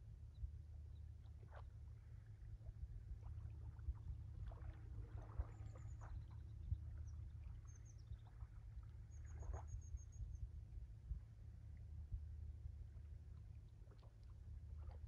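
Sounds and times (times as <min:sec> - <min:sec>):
low sea rumble: 0:00.0 - 0:15.0
small waves lapping: 0:01.4 - 0:10.2, 0:13.3 - 0:15.0.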